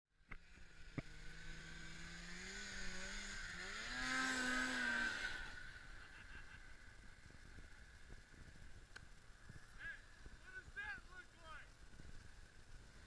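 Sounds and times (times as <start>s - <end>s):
snowmobile engine revving: 0.4s - 7.6s.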